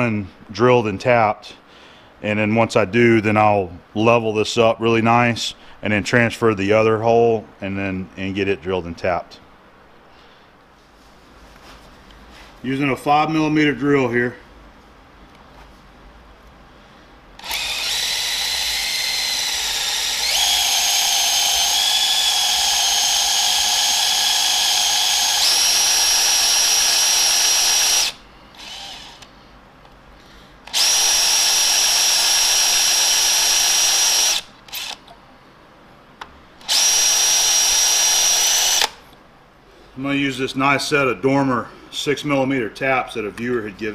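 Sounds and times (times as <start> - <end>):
cordless drill whining: 17.4 - 29.3, 30.7 - 35.0, 36.6 - 39.0.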